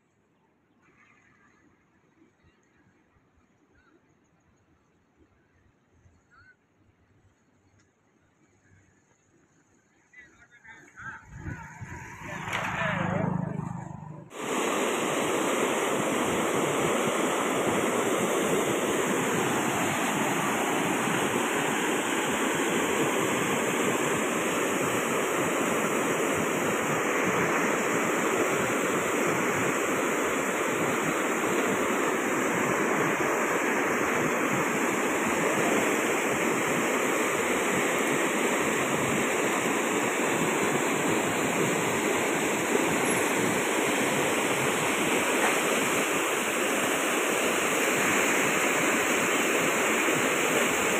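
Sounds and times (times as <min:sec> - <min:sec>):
flood water rushing: 0:11.4 - 0:50.9.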